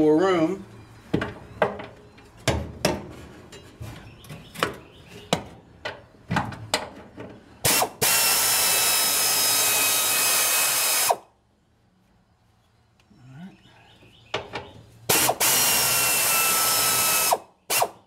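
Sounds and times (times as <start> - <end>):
pneumatic impact wrench: 7.6 - 11.3, 15.1 - 18.0.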